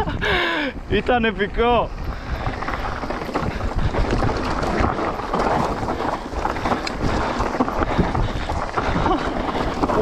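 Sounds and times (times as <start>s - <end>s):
bike tyres rolling on dirt: 0.0s - 10.0s
wind buffeting microphone: 0.0s - 10.0s
bike clattering over bumps: 2.2s - 10.0s.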